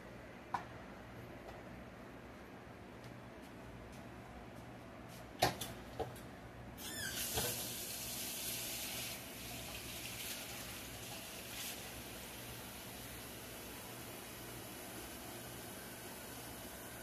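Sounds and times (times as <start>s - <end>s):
water running into sink: 7.1s - 13.5s.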